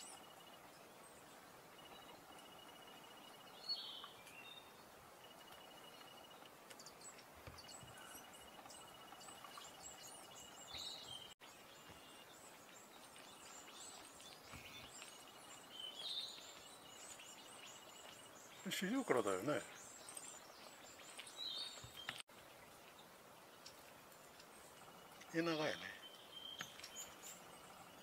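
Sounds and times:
small birds chirping: 0.0 - 28.0
thin high bird calls: 24.4 - 28.0.

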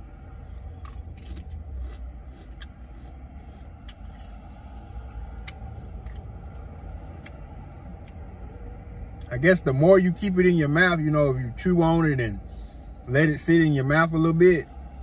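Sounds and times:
low steady rumble: 0.0 - 15.0
crisp crunching: 0.6 - 4.4.

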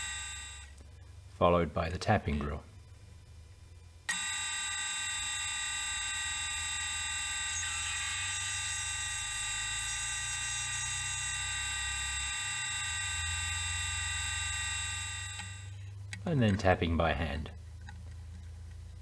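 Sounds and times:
lathe spindle whining: 0.0 - 0.7, 4.1 - 15.7.

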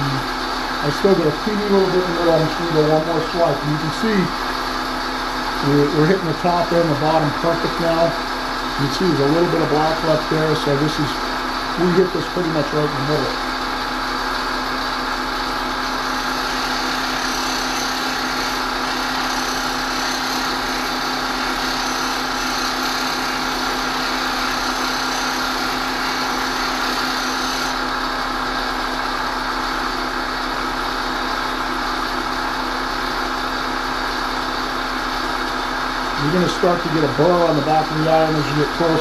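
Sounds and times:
bench grinder motor humming: 0.0 - 39.0
steel grinding on wheel: 15.8 - 27.9.

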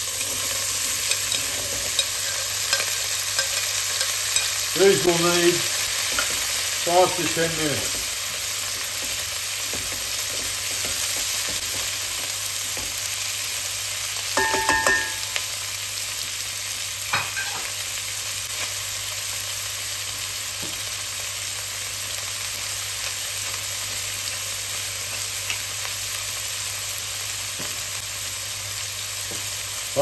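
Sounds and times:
vegetables sizzling in a pot: 0.0 - 30.0
spoon stirring: 0.2 - 4.7.

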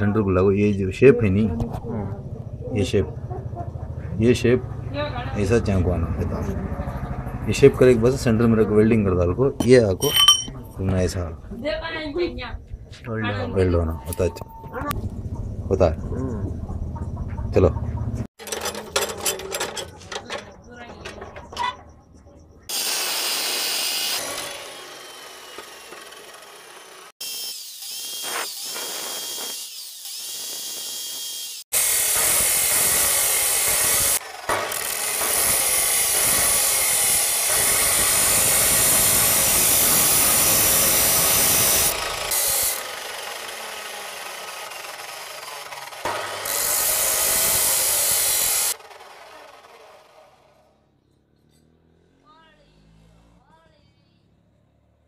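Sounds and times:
abrasive wheel grinding steel: 22.7 - 27.1, 31.4 - 50.8.

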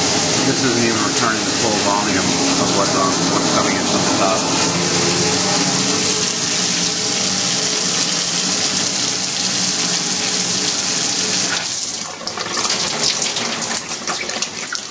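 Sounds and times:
coolant pump humming: 0.0 - 14.9
coolant splashing hard: 0.0 - 14.9
trickles and drips: 5.9 - 14.9.

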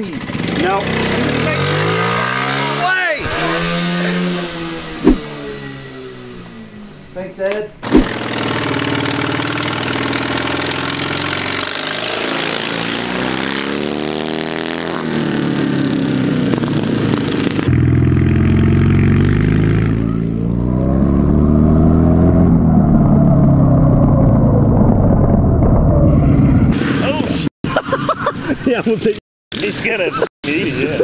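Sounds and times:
small racing engines revving: 0.0 - 27.0
deep engine accelerating: 0.7 - 7.2, 17.0 - 26.8.

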